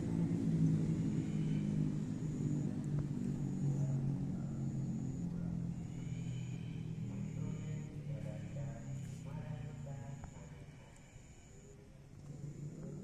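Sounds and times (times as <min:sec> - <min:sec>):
car engine droning at low revs: 0:00.0 - 0:13.0.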